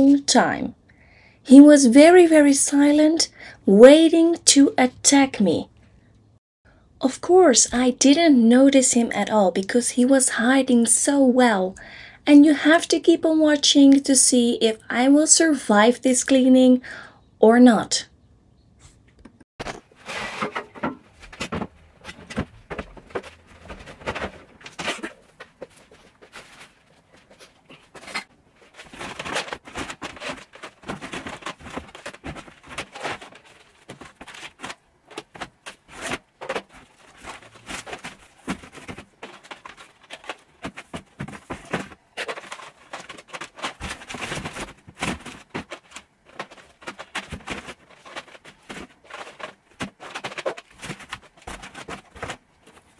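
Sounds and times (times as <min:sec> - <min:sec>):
rustling of clutter: 0:18.9 - 0:52.9
plastic cases clicking and clattering: 0:19.7 - 0:52.9.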